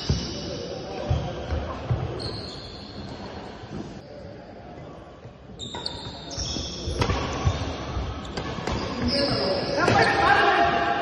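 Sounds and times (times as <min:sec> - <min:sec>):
racket hitting shuttlecock: 0:06.9 - 0:07.4.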